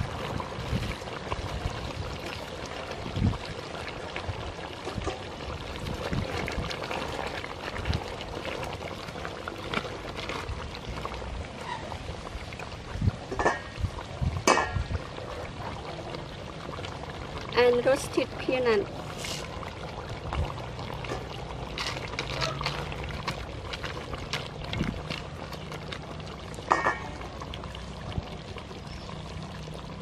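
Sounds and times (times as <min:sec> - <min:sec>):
curry bubbling in a pot: 0:00.0 - 0:30.0
knocks against a pot: 0:13.3 - 0:13.8, 0:14.4 - 0:14.9, 0:26.6 - 0:27.2.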